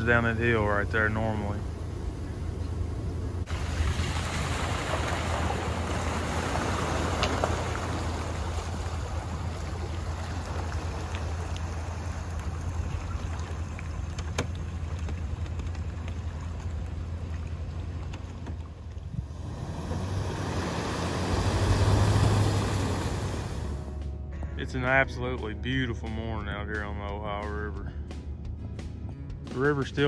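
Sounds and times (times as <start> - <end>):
truck engine running: 0.0 - 3.8, 4.6 - 29.3
water washing around wheels: 0.0 - 24.0.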